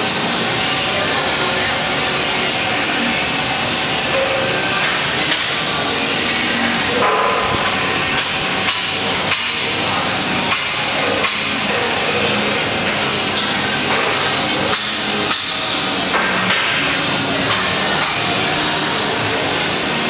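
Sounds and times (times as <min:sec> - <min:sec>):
metal shop din: 0:00.1 - 0:20.0.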